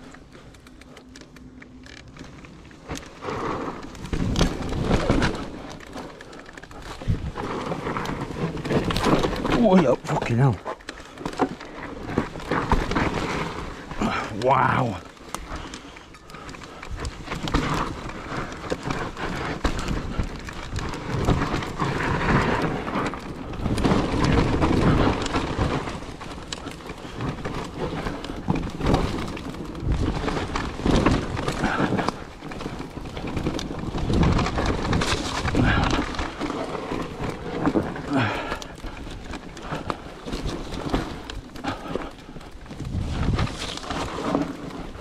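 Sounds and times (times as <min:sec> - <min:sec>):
bike clattering over bumps: 0:00.0 - 0:45.0
bike tyres rumbling over dirt: 0:00.0 - 0:45.0.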